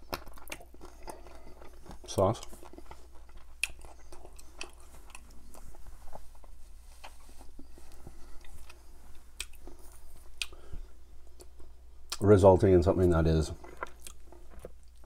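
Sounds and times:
wet chewing mouth clicks: 0.0 - 5.8, 9.4 - 10.6, 13.6 - 15.0
faint low hum: 0.0 - 15.0.

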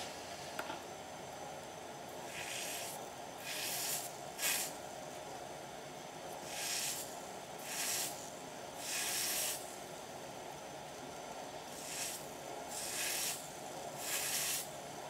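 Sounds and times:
pad sizzling against metal: 2.2 - 4.8, 6.4 - 9.7, 11.8 - 14.7.

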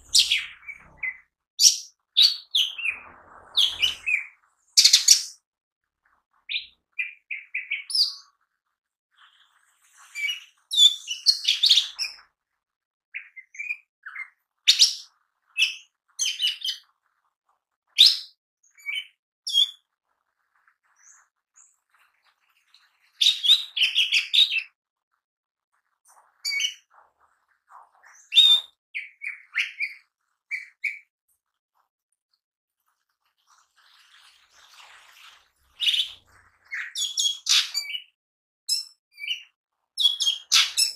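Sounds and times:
bird chirping and whistling: 0.0 - 3.0, 3.6 - 5.4, 35.8 - 38.0, 40.0 - 40.9.

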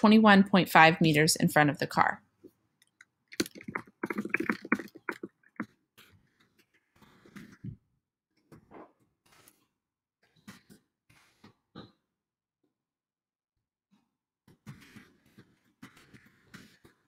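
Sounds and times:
computer keyboard typing: 3.4 - 5.7.

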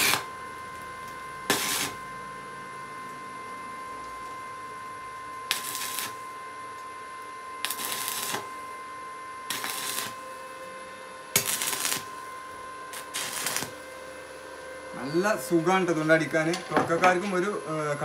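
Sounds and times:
stick welding arc: 0.0 - 0.4, 1.0 - 2.1, 5.4 - 6.4, 7.6 - 8.7, 9.5 - 10.4, 11.3 - 14.1
steady high whine: 0.0 - 18.0.

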